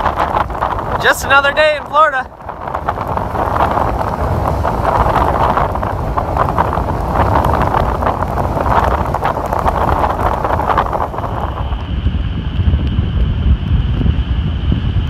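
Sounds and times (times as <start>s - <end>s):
surf breaking on shore: 0.0s - 11.9s
wind buffeting microphone: 0.0s - 15.0s.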